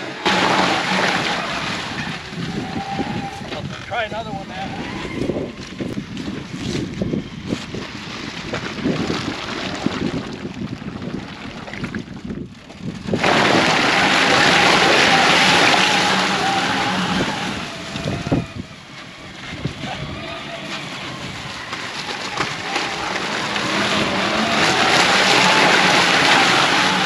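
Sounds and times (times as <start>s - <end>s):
tyre and wind noise: 0.0s - 27.0s
electric motor whine: 13.9s - 27.0s.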